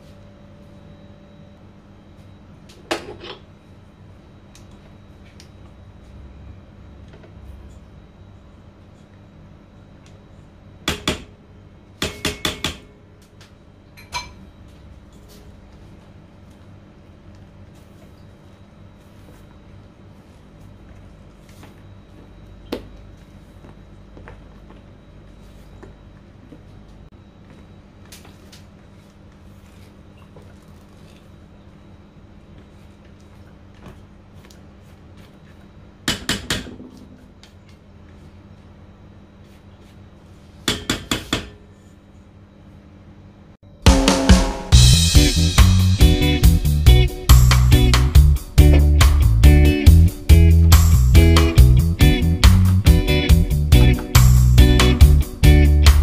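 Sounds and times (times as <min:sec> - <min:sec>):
sharp knocks on metal bowl: 0:12.0 - 0:12.9.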